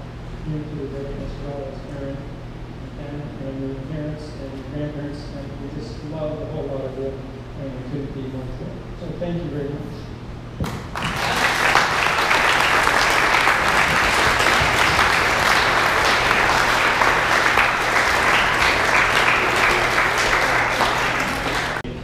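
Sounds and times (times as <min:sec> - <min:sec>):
crowd clapping: 0:10.6 - 0:21.9.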